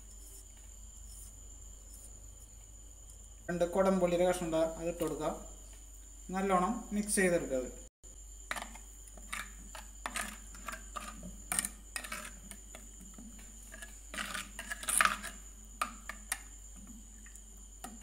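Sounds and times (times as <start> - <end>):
spoon scraping earthenware pot: 9.2 - 16.4.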